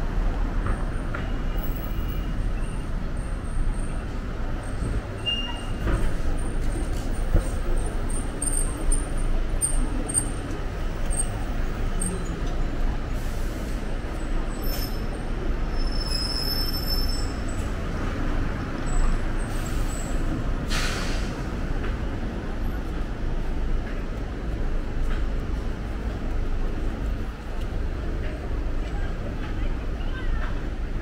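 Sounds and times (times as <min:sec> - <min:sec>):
passing vehicles rumbling: 0:00.0 - 0:31.0
short hiss: 0:20.7 - 0:21.3.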